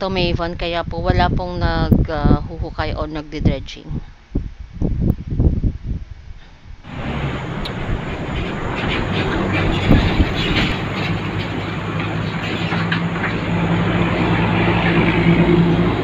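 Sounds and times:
sharp knocks: 6.9 - 15.9
heavy diesel engines droning: 6.9 - 16.0
road traffic: 6.9 - 16.0.

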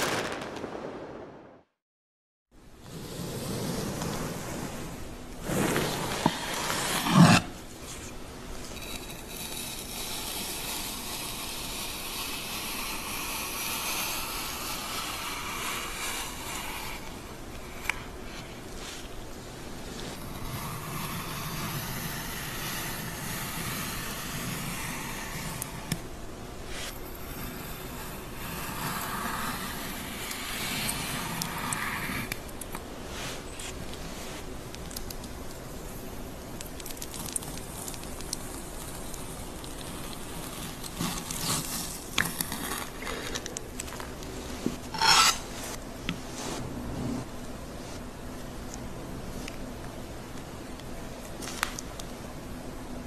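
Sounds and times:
knife sawing through bread crust: 44.9 - 45.7.

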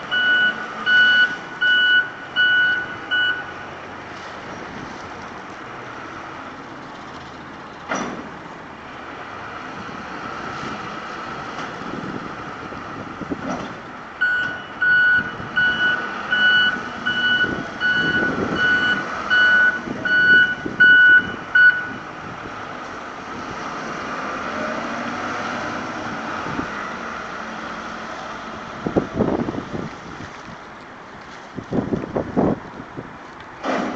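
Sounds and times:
reversing alarm beeping: 0.1 - 3.7, 14.2 - 22.1
clunks: 7.8 - 8.5, 13.4 - 14.7, 33.3 - 33.9.

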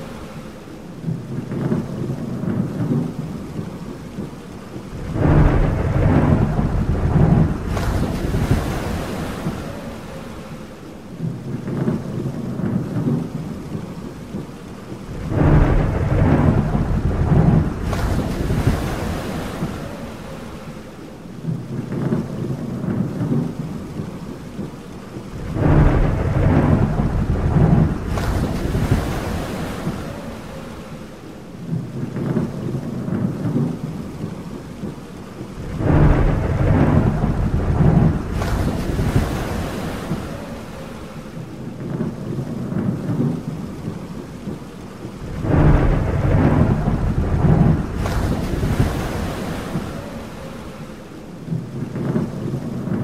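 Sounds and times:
steady rain: 0.0 - 53.0
thunder rumbling: 0.0 - 53.0.

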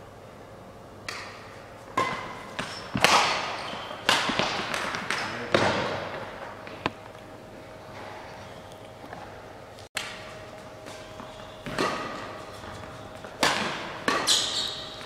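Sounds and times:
racket hitting shuttlecock: 1.0 - 6.9, 10.0 - 15.0.

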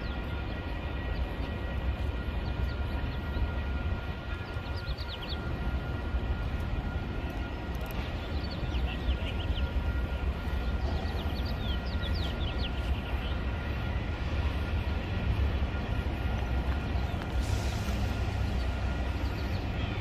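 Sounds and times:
diesel locomotive idling: 0.0 - 20.0.

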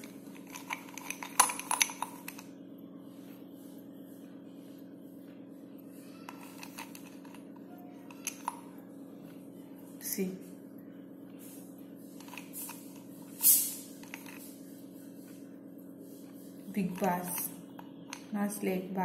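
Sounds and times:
slate pencils clicking: 0.0 - 2.4, 6.3 - 7.4
steady low hum: 0.0 - 19.0.

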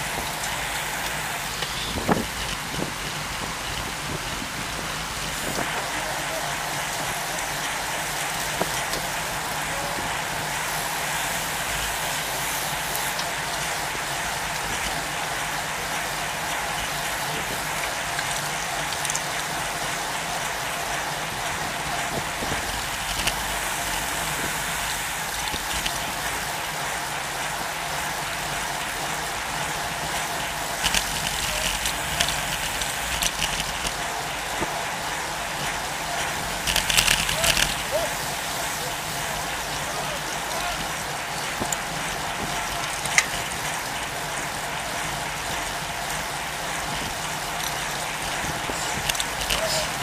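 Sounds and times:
bike tyres rolling: 0.0 - 50.0
freewheel hubs ticking: 28.4 - 34.0.

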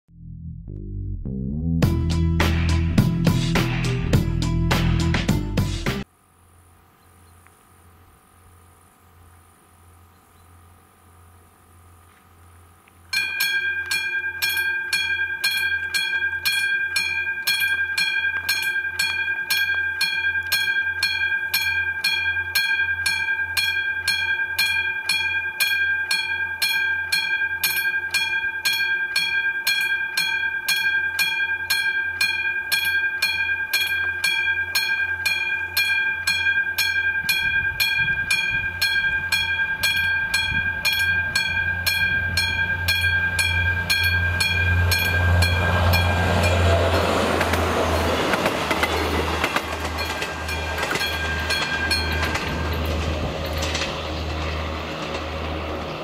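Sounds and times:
level crossing warning bell: 13.1 - 55.5
train rumble: 37.2 - 56.0.

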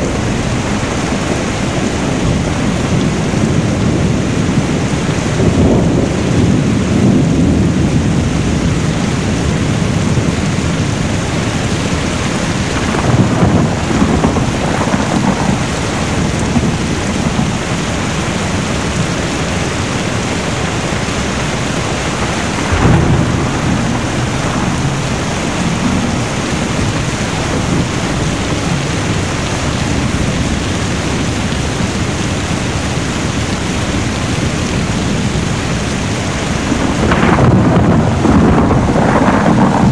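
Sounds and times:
heavy rain: 0.0 - 39.9
thunder rolling: 0.0 - 39.9.

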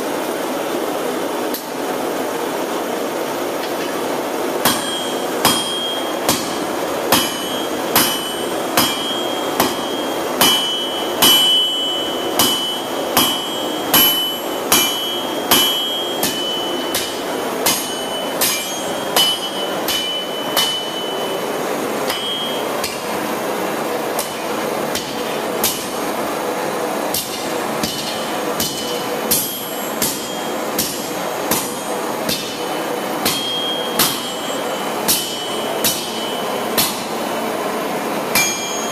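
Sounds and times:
high clear anvil ring: 4.6 - 23.2, 27.2 - 37.2, 38.3 - 38.9
hammer striking steel on anvil: 4.6 - 23.3, 24.0 - 26.1, 27.1 - 37.4, 38.3 - 38.9.

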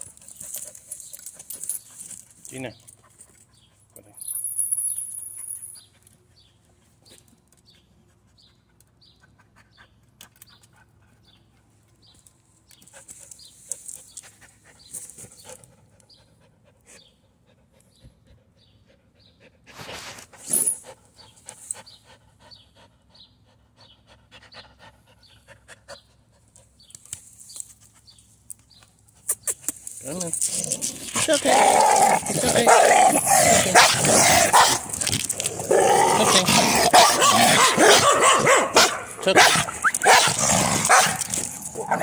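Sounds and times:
dog sniffing and breathing hard: 5.4 - 12.0, 12.8 - 27.0.

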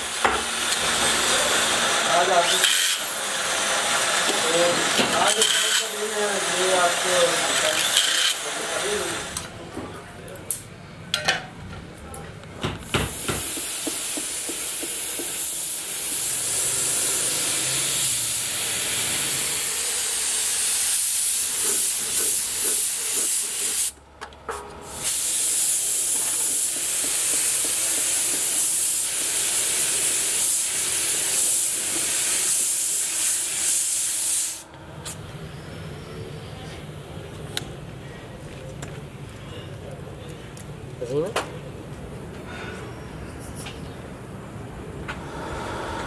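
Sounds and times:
paint spray gun hissing: 12.9 - 24.0, 24.8 - 34.7.

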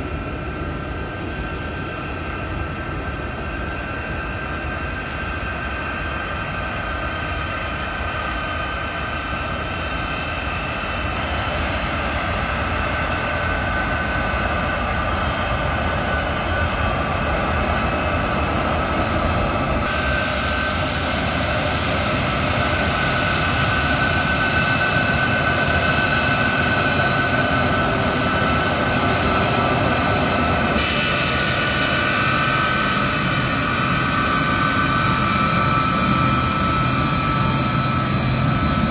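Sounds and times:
jet engines whining: 0.0 - 38.9.

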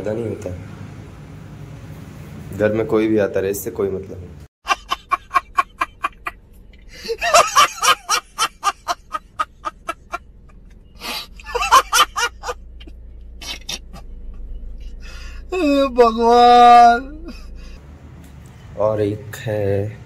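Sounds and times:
man laughing hard: 4.6 - 6.3, 7.0 - 10.2, 11.0 - 14.0.

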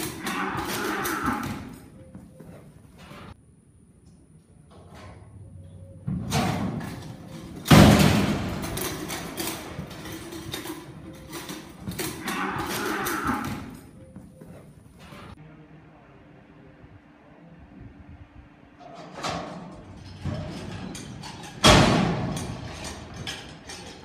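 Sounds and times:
metal gate banging: 0.0 - 2.0, 6.0 - 14.0, 18.8 - 24.0
hooves thudding on dirt: 6.0 - 15.4.

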